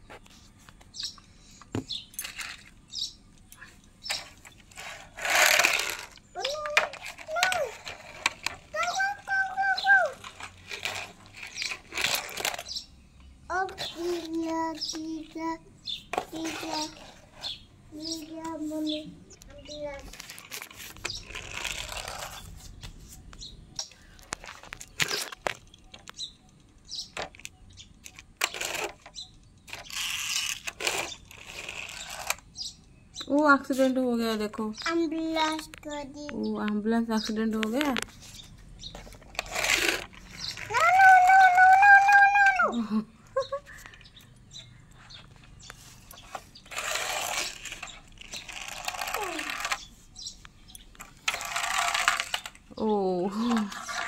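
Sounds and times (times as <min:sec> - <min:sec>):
toy vehicle rolling on floor: 0:01.9 - 0:12.9, 0:13.5 - 0:32.7, 0:37.6 - 0:42.6, 0:43.7 - 0:50.0, 0:50.7 - 0:54.0
plastic toy clicks and knocks: 0:03.4 - 0:12.8, 0:23.8 - 0:32.4, 0:46.1 - 0:49.9, 0:50.7 - 0:52.7.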